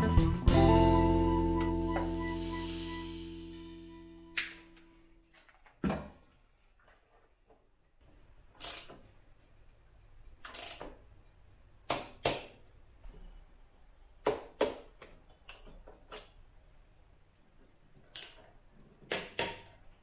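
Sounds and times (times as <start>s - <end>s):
socket wrench clicking: 8.6s - 9.0s, 10.4s - 10.9s.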